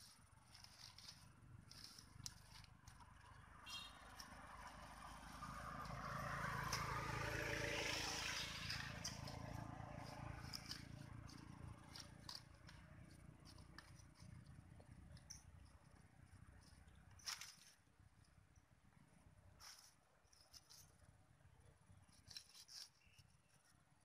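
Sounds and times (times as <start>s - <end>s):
machete scraping in soil: 0.0s - 14.6s, 16.6s - 17.9s, 22.0s - 23.8s
hands digging wet soil: 0.0s - 18.0s
vehicle passing: 1.1s - 14.7s.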